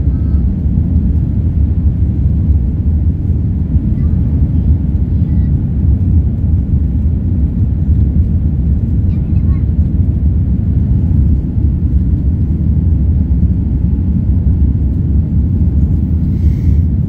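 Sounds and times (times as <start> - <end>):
jet engine rumble in cabin: 0.0 - 17.0.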